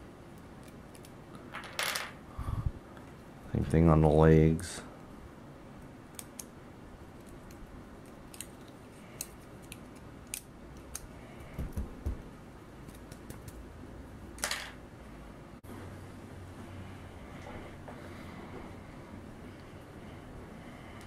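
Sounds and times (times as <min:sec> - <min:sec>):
dental pick clicking and scratching: 0:07.2 - 0:11.8.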